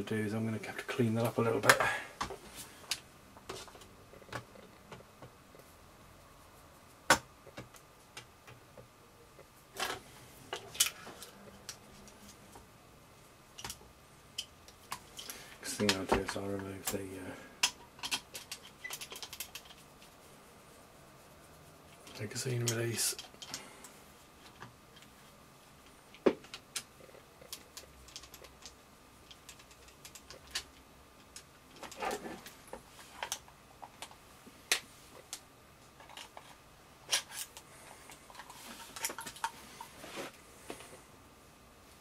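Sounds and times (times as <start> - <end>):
small parts clicking on wooden bench: 17.6 - 19.8, 25.8 - 32.1.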